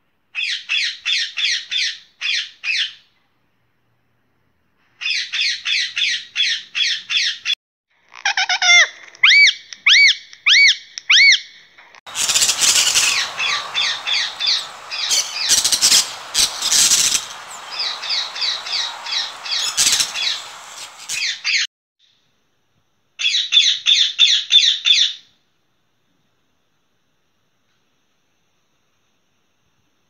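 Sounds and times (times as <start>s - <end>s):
parrots squawking and chattering: 12.1s - 21.4s.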